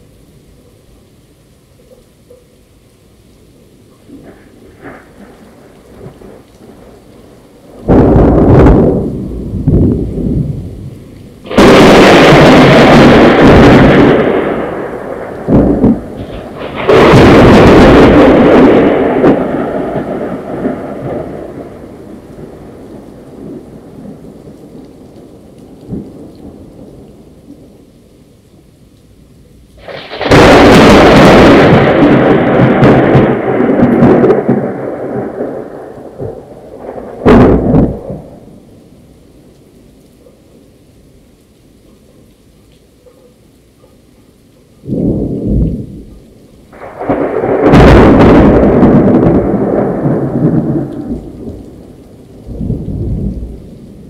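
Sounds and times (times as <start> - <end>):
steady rain: 0.0 - 54.0
thunderclaps rumbling: 4.0 - 27.9, 29.8 - 39.5, 44.8 - 54.0.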